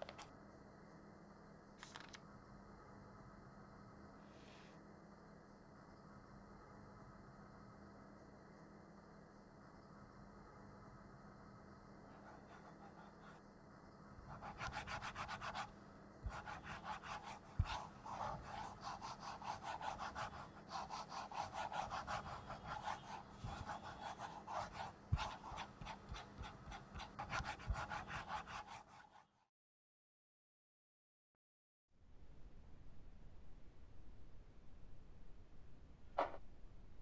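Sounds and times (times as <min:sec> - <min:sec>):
pen scribbling on paper: 0:12.1 - 0:13.4, 0:14.3 - 0:29.3.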